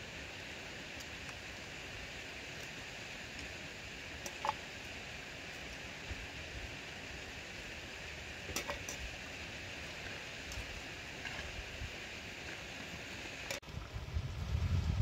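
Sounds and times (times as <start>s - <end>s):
stream water rushing: 0.0s - 14.0s.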